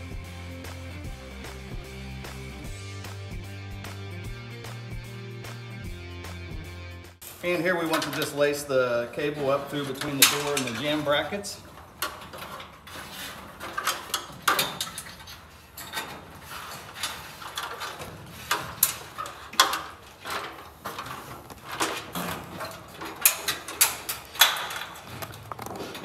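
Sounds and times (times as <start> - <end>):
metal cable clinking and rattling: 7.3 - 26.0.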